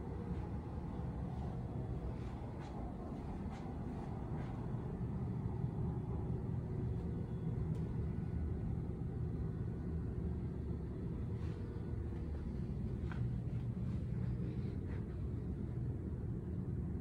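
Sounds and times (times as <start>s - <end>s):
low background rumble: 0.0s - 17.0s.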